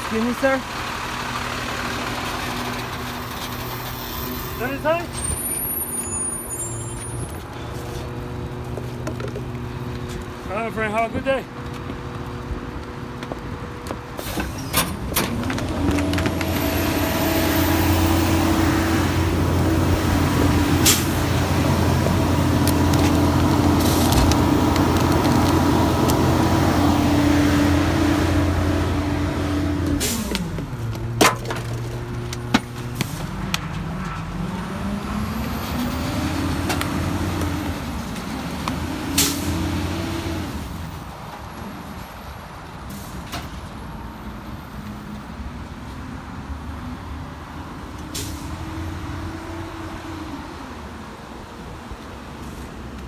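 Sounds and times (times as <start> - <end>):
garbage truck engine revving: 0.4 - 5.7, 14.2 - 40.9.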